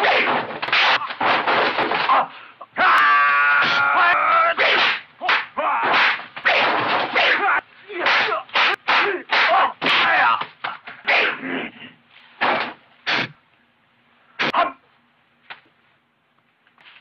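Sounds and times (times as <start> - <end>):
short shouts: 2.1 - 11.5
slapping punch hits: 8.0 - 10.5.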